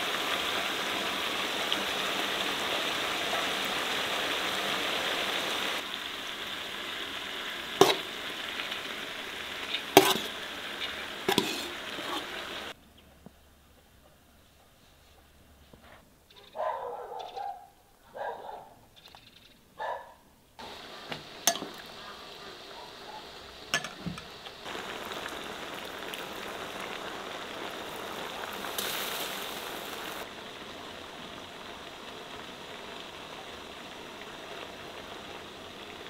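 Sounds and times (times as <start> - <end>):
dog barking: 3.2 - 3.6, 16.4 - 18.8, 19.8 - 20.2, 22.0 - 23.4
melted butter hissing on rice: 7.2 - 12.8, 24.4 - 30.3.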